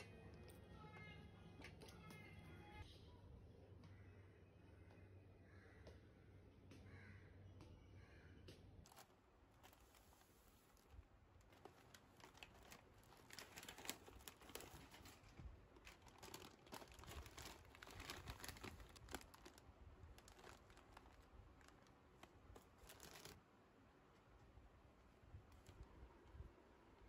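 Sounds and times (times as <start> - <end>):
snack packets crinkling: 8.9 - 23.4.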